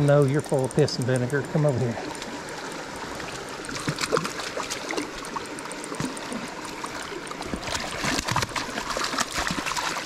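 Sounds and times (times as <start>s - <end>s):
stream running over gravel: 3.0s - 10.0s
fish splashing at surface: 7.4s - 10.0s.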